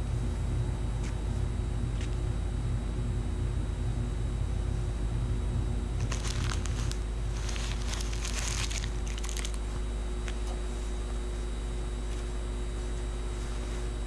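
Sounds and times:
faint hum: 0.0 - 14.0
crinkling and crackling: 6.0 - 10.6.

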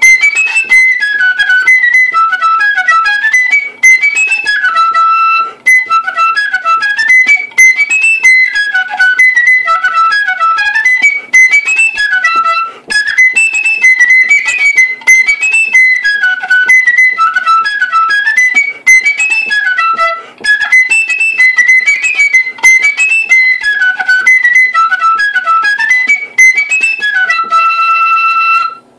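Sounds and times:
flute melody: 0.0 - 28.9.

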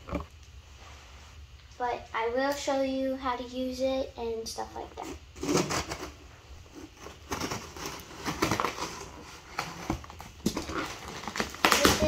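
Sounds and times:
tape and cardboard crackling: 5.0 - 12.0
scissors slitting packing tape: 10.5 - 12.0.

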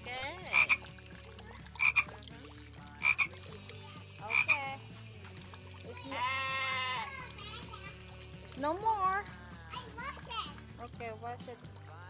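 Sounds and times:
frog croaking: 0.4 - 1.0, 1.7 - 2.3, 2.9 - 3.4, 4.2 - 4.8.

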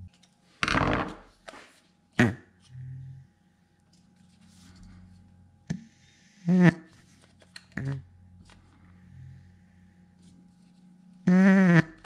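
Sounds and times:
vent valve buzzing: 6.5 - 6.8, 11.2 - 12.0.

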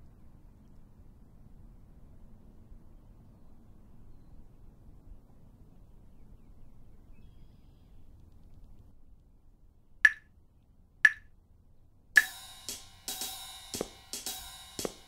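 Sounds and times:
sharp high clicks: 11.1 - 11.3, 12.2 - 12.9
drum beat with hi-hat: 12.2 - 15.0.

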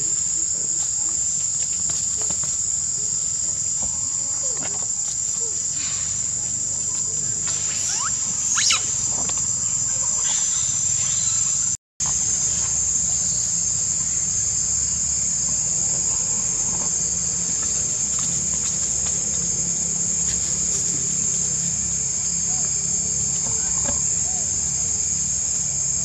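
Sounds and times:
high-pitched insect drone: 0.0 - 26.0
monkeys squealing: 7.5 - 9.2.

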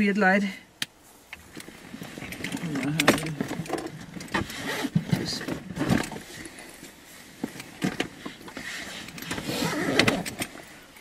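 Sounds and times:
clicks and knocks in car: 1.4 - 6.4, 7.4 - 10.6.

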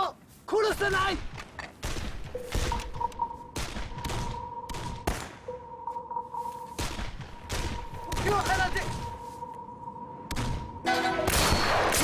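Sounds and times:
steady high-pitched tone: 2.4 - 11.8
gunshots: 10.3 - 12.0.

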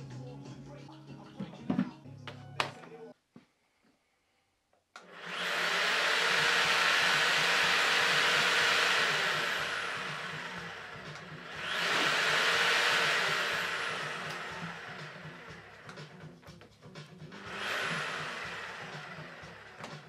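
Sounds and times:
power tool motor whining: 5.0 - 16.2, 17.4 - 20.0.

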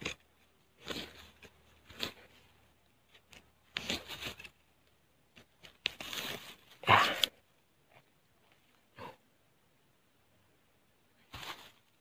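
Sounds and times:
blade digging in dry soil: 0.0 - 7.3
roots tearing: 0.0 - 7.4.

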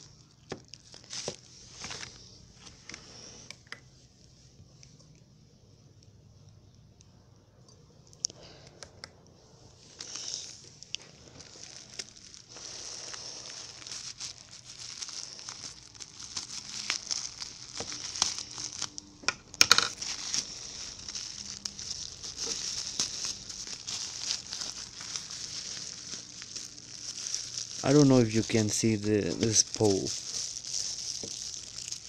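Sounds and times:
plastic bag crinkling: 0.0 - 3.4, 9.8 - 32.0
sharp plastic crackle: 0.0 - 3.8, 9.9 - 32.0.

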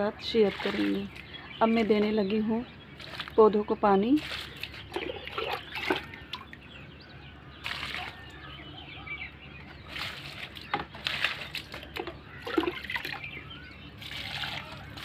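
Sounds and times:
water splashing onto soil: 0.4 - 2.1, 3.0 - 3.5, 4.1 - 6.6, 7.6 - 8.4, 9.8 - 13.4, 14.0 - 15.0.

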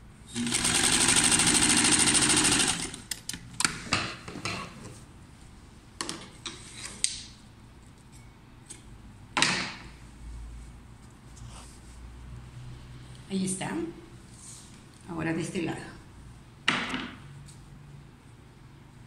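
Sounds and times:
sewing machine running: 0.3 - 3.0.

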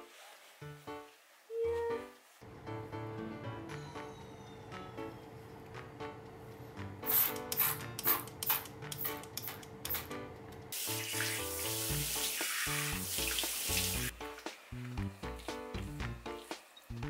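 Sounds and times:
background music: 0.0 - 17.0
kitchen tap running: 10.7 - 16.2
water splashing on face: 10.8 - 14.1.

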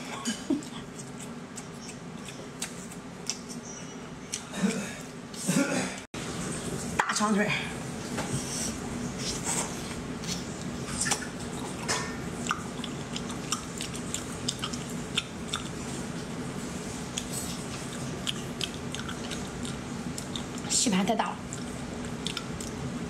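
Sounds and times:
wet chewing and mouth smacking: 0.6 - 3.6, 10.2 - 15.9, 17.1 - 20.7, 21.5 - 22.8.

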